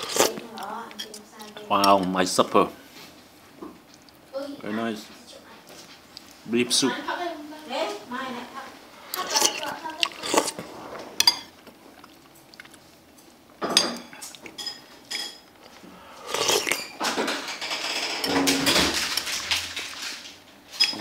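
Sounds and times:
dishes clattering and scraping: 0:09.2 - 0:11.6, 0:13.6 - 0:21.0.

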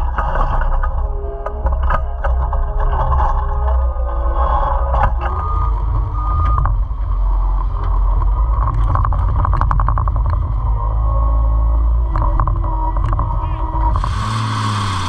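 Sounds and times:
engine whine: 0:00.0 - 0:15.0
diesel engine running: 0:03.8 - 0:15.0.

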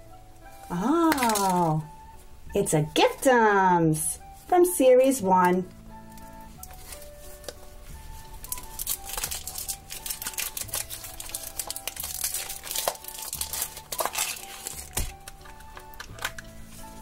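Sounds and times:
light background music: 0:00.0 - 0:17.0
cellophane crinkling and tearing: 0:00.5 - 0:02.0, 0:06.1 - 0:17.0.

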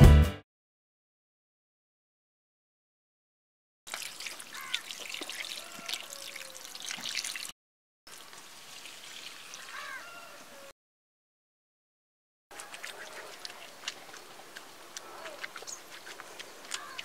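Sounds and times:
water pouring into steel bowl: 0:03.9 - 0:07.5
wet clicks of meat handled: 0:12.5 - 0:17.0.

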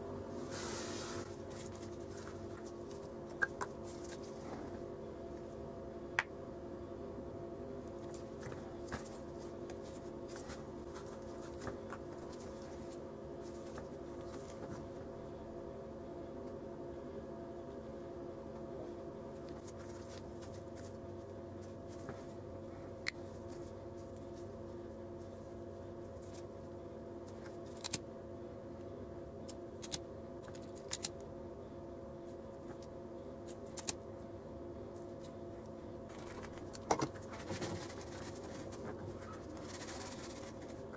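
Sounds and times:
steady hum: 0:00.0 - 0:40.9.

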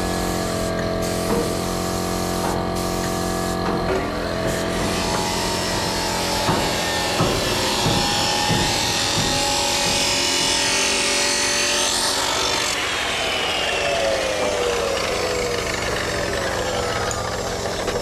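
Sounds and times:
chop saw cutting metal: 0:00.0 - 0:18.0
motor winding down: 0:00.0 - 0:18.0.

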